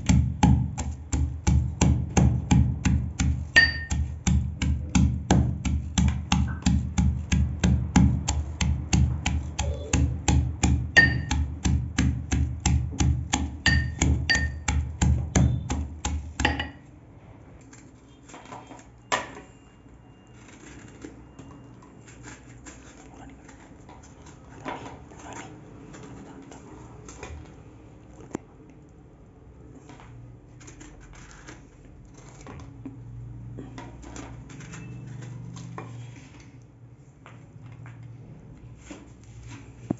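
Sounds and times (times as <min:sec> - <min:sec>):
steel pestle pounding in mortar: 0:00.0 - 0:16.9.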